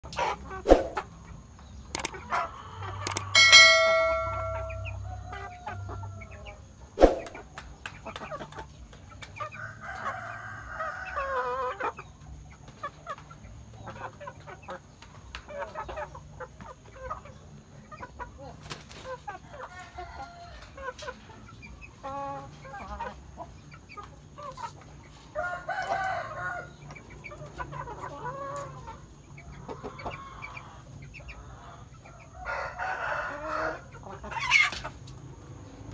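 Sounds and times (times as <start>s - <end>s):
chickens clucking: 0.0s - 35.9s
roosters crowing: 2.0s - 7.5s, 9.4s - 11.9s, 19.1s - 23.4s, 25.2s - 35.9s
ringing bell-like chime: 3.4s - 5.1s.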